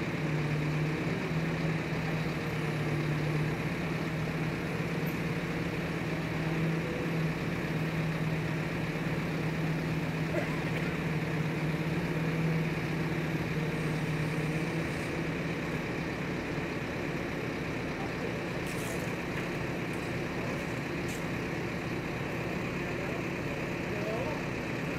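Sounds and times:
heavy diesel engine humming: 0.0s - 24.9s.

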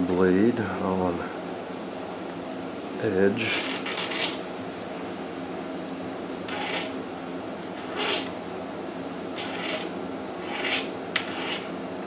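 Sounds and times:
razor blade scraping wood: 3.5s - 4.4s, 6.5s - 7.0s, 7.7s - 8.4s, 9.4s - 11.8s.

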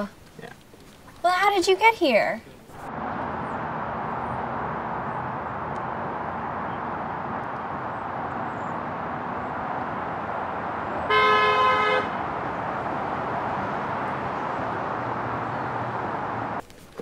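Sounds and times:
road noise hiss: 2.4s - 17.0s
car horn honk: 11.1s - 12.3s.

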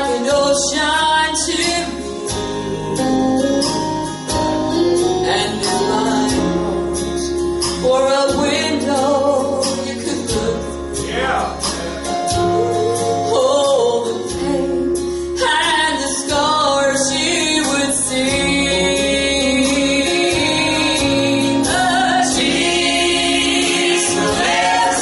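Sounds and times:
woman singing gospel song: 0.0s - 4.0s, 4.8s - 11.0s, 12.0s - 25.0s
instrumental accompaniment with bass: 0.0s - 25.0s
steady percussion beat: 20.4s - 25.0s.

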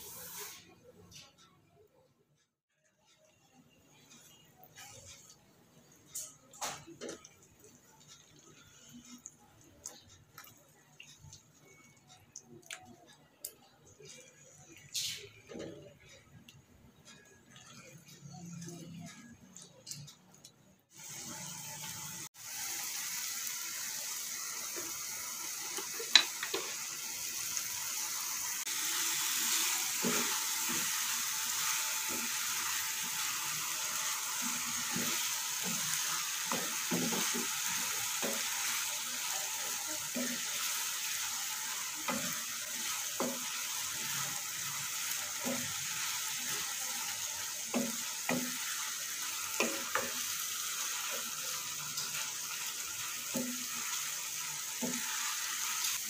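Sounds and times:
paste sizzling in oil: 0.0s - 0.6s, 20.9s - 56.0s.

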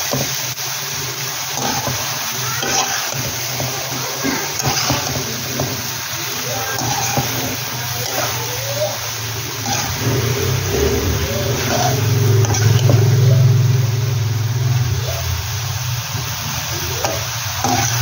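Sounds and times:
spatula scraping metal pan: 1.5s - 13.2s, 17.0s - 18.0s
low engine-like hum: 9.3s - 17.6s.

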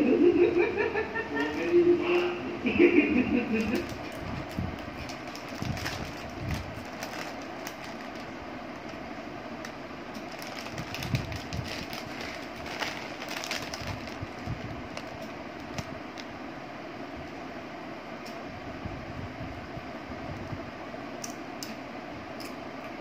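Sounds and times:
chips crunching: 3.6s - 9.0s, 9.6s - 16.3s
plastic bag crinkling: 3.6s - 16.4s.

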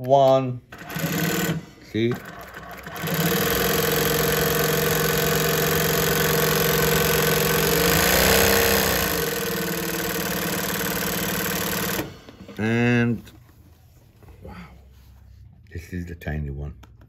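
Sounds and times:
industrial sewing machine running: 0.7s - 12.3s.

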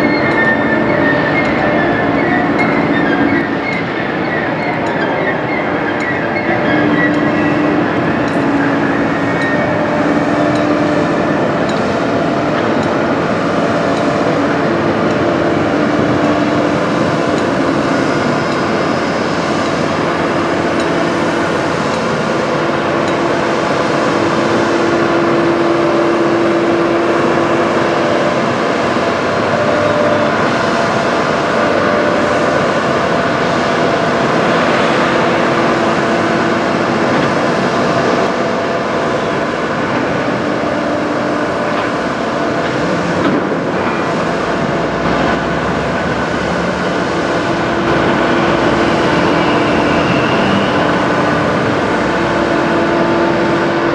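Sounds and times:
crane motor hum: 0.0s - 53.9s.

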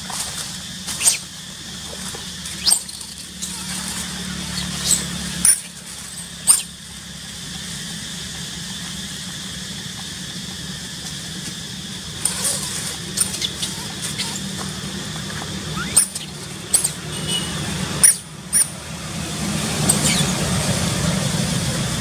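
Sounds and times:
infant monkey squealing: 0.9s - 1.3s, 2.5s - 6.8s, 12.2s - 14.7s, 15.6s - 17.4s, 18.0s - 18.8s, 19.8s - 20.5s.

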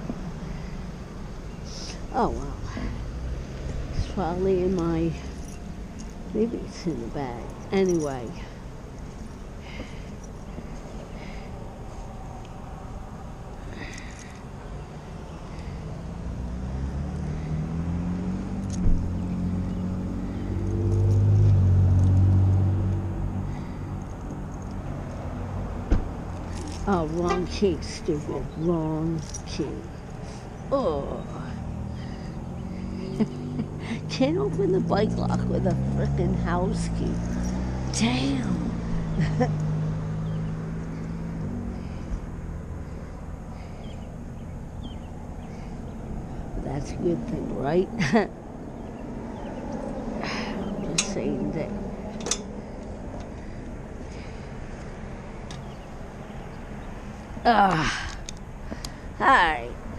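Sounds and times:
outdoor traffic noise: 0.0s - 59.9s
vehicle engine passing by: 0.0s - 59.9s
car engine idling: 38.0s - 59.9s.

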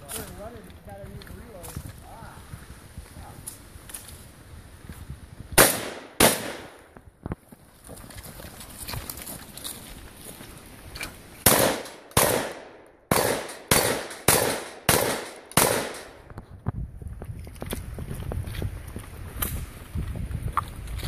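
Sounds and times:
shotgun shots echoing: 5.6s - 6.9s, 11.4s - 16.3s.

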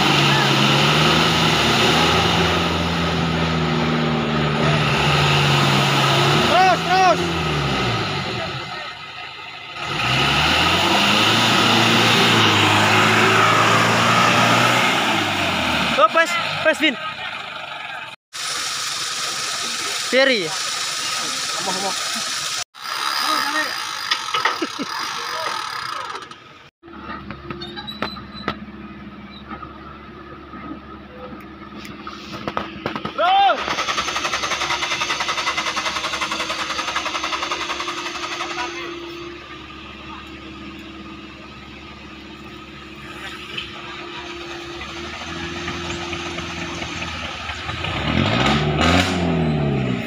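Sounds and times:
engine at high revs under load: 0.0s - 8.8s, 9.8s - 16.9s, 33.6s - 41.5s, 42.9s - 50.0s
car engine at low revs: 34.2s - 50.0s.

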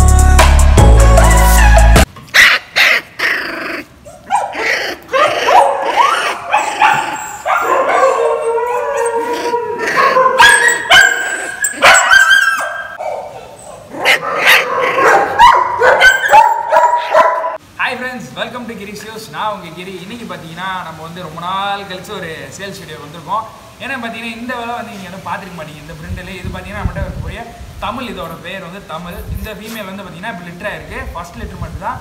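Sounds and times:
puppies whining and yelping: 2.4s - 17.4s.

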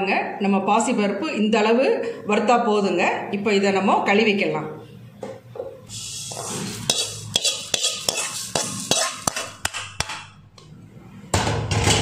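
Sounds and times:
hand stirring grains against steel: 5.9s - 9.8s.

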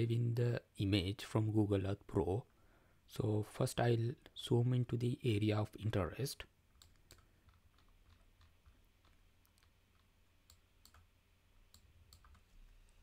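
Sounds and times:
computer mouse clicks: 6.8s - 13.0s.

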